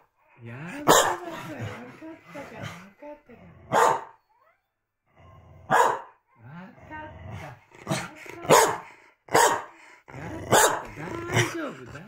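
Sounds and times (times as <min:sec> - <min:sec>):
dog barking: 0:00.8 - 0:01.3, 0:03.7 - 0:04.2, 0:05.7 - 0:06.2, 0:07.9 - 0:09.8, 0:10.5 - 0:11.5.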